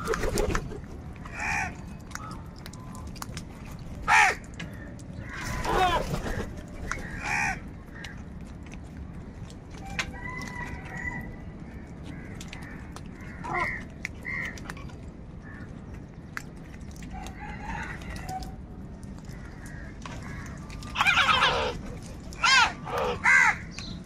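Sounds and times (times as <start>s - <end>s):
beaks ticking on a bowl: 0.0s - 5.6s, 6.6s - 24.0s
low background rumble: 0.0s - 24.0s
faint crow calls: 1.2s - 2.4s, 4.1s - 8.3s, 9.8s - 15.9s, 19.2s - 24.0s
loud harsh crow caw: 7.2s - 7.6s, 22.5s - 23.7s.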